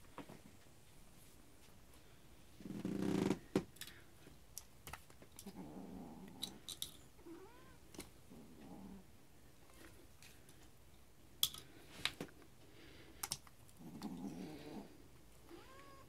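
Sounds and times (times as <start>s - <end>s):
kitten purring: 2.6s - 3.4s, 5.4s - 6.6s, 7.2s - 9.1s, 13.8s - 16.0s.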